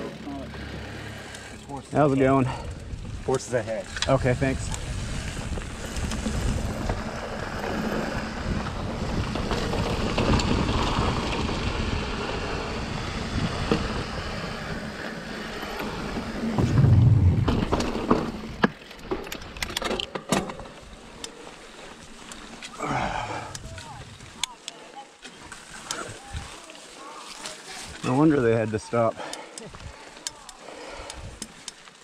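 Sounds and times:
bike rattling over bumps: 0.0s - 24.6s
bike clicking and ticking: 0.0s - 26.6s, 28.1s - 32.0s
mountain bike tyres rolling on dirt: 0.0s - 32.0s
heavy low thump: 16.6s - 18.0s.

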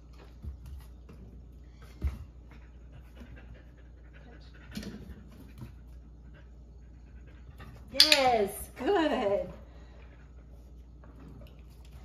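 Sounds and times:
dog panting: 2.4s - 7.8s.

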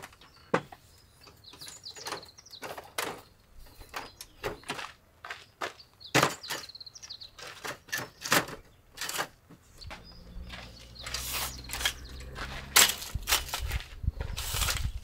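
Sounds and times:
knocks and clatter of handling: 1.5s - 14.0s.

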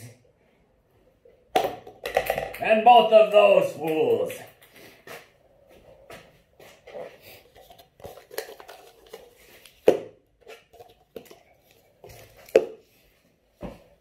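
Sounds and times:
plastic cups clattering on table: 1.5s - 2.9s, 6.9s - 12.9s.

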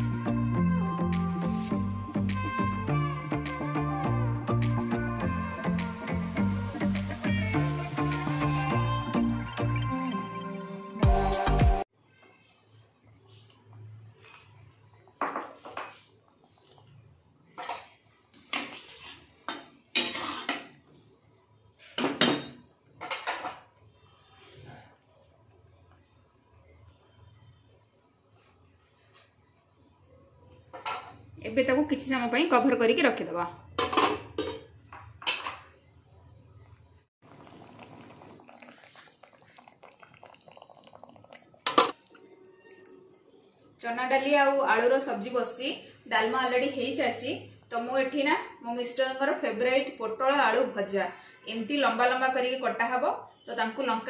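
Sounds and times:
curry simmering bubbling: 12.4s - 18.4s, 37.2s - 43.8s
spatula scraping a pan: 18.6s - 19.4s
metal lid and spatula clanking: 33.8s - 35.7s.

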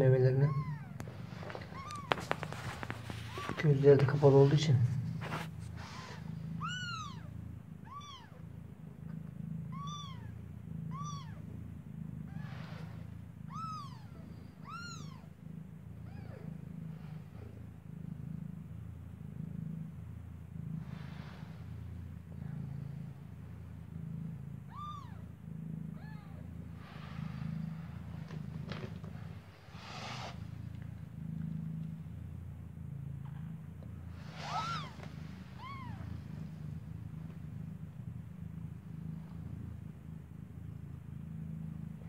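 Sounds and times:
low steady hum: 0.0s - 42.0s
kitten mewing: 0.3s - 3.8s, 5.8s - 8.4s, 9.7s - 11.4s, 13.5s - 15.3s, 16.0s - 16.6s, 24.7s - 25.3s, 25.9s - 26.5s, 34.3s - 36.2s.

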